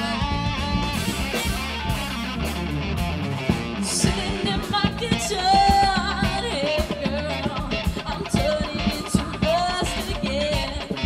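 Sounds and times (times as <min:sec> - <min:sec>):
bass guitar: 0:00.0 - 0:11.0
drum kit beat: 0:00.0 - 0:11.0
electric guitars: 0:00.0 - 0:11.0
woman singing: 0:03.8 - 0:11.0.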